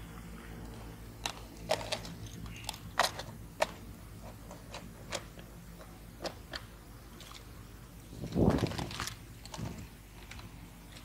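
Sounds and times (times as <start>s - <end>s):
plastic container clicking and crackling: 8.2s - 11.0s.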